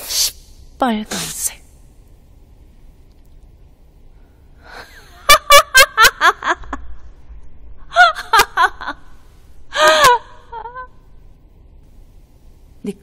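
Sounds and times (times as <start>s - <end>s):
woman laughing: 4.7s - 6.9s, 7.9s - 11.0s.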